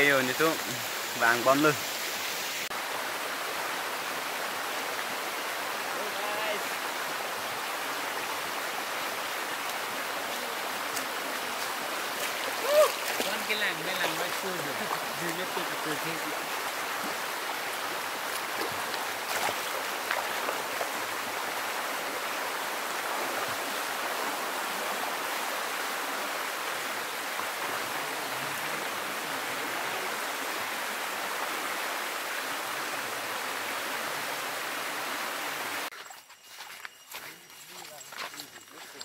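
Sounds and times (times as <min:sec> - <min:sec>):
stream rushing over rocks: 0:00.0 - 0:36.0
feet wading through water: 0:09.2 - 0:21.2.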